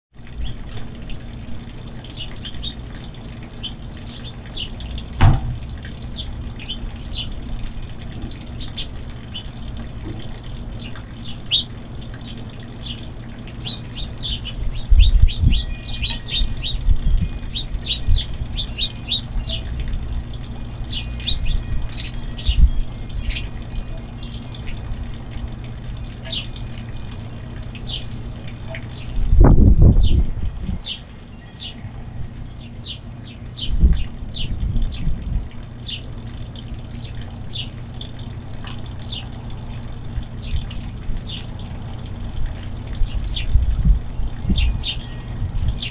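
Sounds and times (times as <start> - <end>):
finches chirping: 12.8 - 24.9, 30.8 - 35.0, 44.5 - 45.9.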